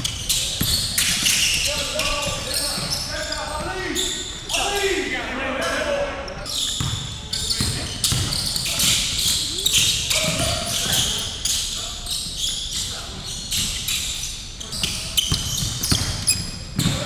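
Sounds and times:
sneakers squeaking: 0.0 - 17.0
voices in background: 0.0 - 17.0
basketball bouncing on wooden floor: 6.8 - 8.8, 15.2 - 17.0.

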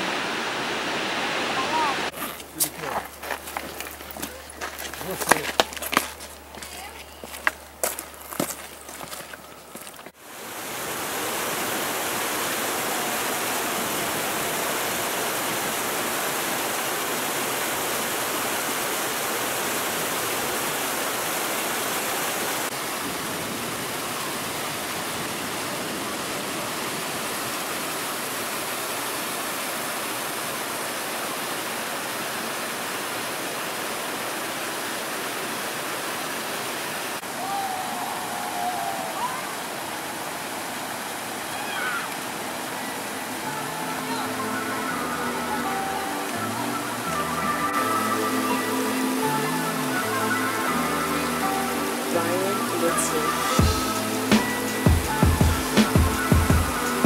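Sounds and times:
water rushing over rocks: 0.0 - 57.0.

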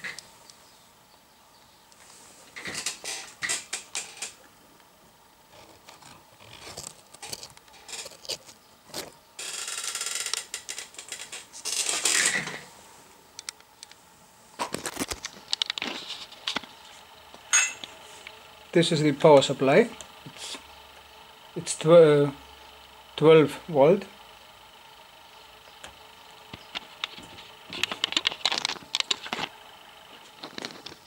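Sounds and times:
rustling: 5.5 - 13.2, 14.0 - 18.4, 26.5 - 31.0.

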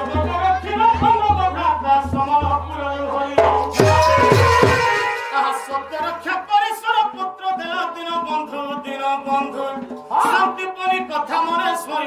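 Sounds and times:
instrumental accompaniment: 0.0 - 10.8
drum strokes: 3.4 - 7.1.

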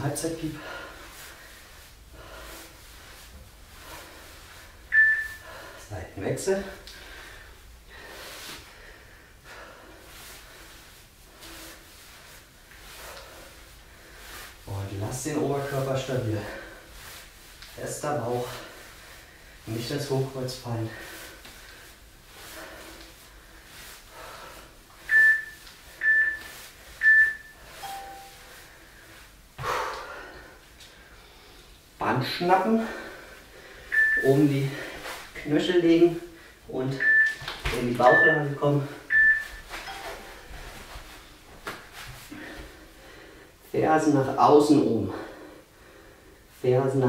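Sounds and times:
man breathing hard: 0.5 - 6.0, 6.8 - 14.6, 28.6 - 31.9, 32.7 - 34.0, 42.3 - 43.6, 45.1 - 46.5
timer beeping: 4.9 - 5.4, 25.1 - 26.4, 27.0 - 28.5, 33.9 - 34.3, 37.0 - 37.4, 38.0 - 40.3
low long timer tone: 27.0 - 28.5, 38.0 - 40.3.

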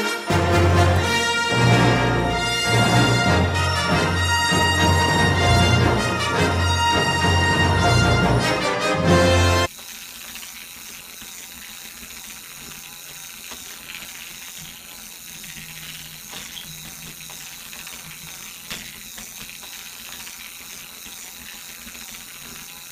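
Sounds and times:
toy motor and gears whirring: 9.3 - 22.9.

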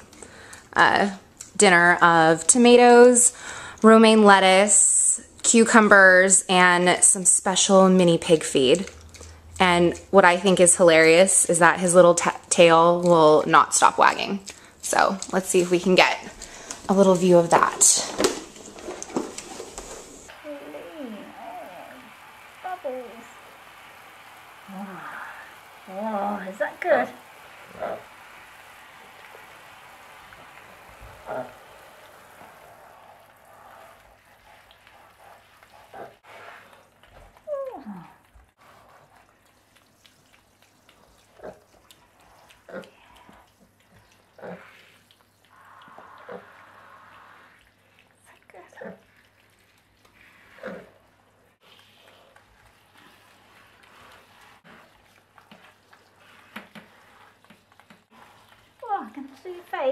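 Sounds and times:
shower water spraying and trickling: 0.0 - 59.9
shower spray on shower tray: 9.6 - 36.8.

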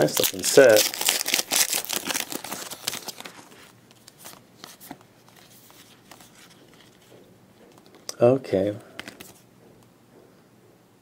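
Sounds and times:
wrapper crinkling: 0.0 - 7.0
cards clicking as flipped: 8.9 - 9.4.

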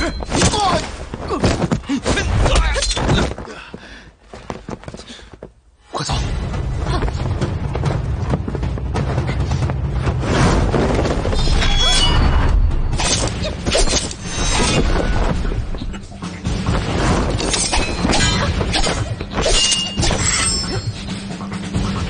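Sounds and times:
dramatic music: 6.0 - 22.0.

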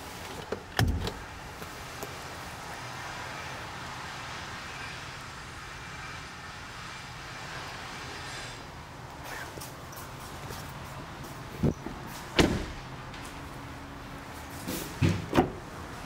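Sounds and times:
heavy thump: 12.4 - 12.8.

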